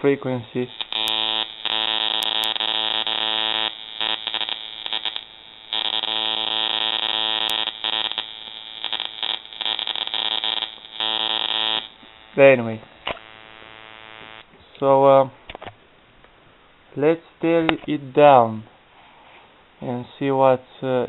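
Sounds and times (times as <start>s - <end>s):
electric arc buzzing: 0.0s - 14.6s.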